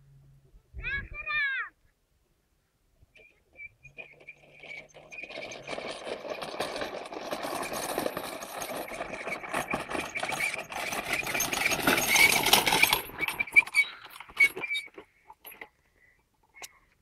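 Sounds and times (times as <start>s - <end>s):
go-kart rattling over dry grass: 3.2s - 16.6s.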